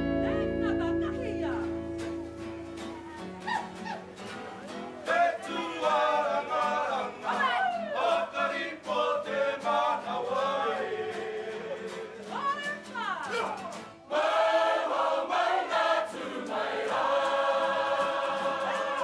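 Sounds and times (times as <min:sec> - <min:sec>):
group singing in unison: 0:05.0 - 0:12.4, 0:14.1 - 0:19.0.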